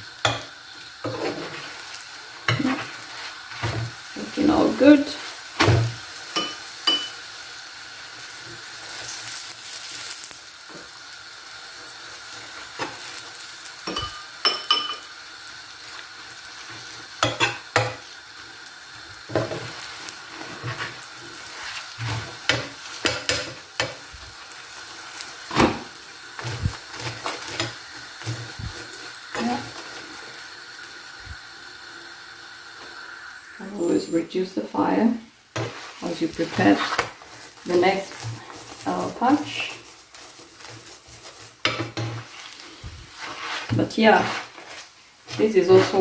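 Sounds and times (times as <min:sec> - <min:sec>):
flatbread sizzling in oil: 0:00.0 - 0:46.0
metal spoon scraping a pan: 0:00.2 - 0:05.3, 0:06.3 - 0:07.3, 0:13.9 - 0:15.1, 0:17.2 - 0:18.0, 0:26.4 - 0:30.0, 0:35.6 - 0:46.0.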